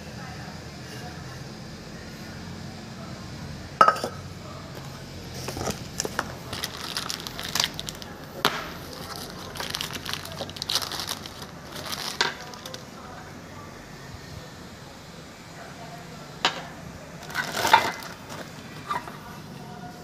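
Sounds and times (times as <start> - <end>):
plastic packaging crinkling: 5.4 - 12.9, 17.2 - 18.7.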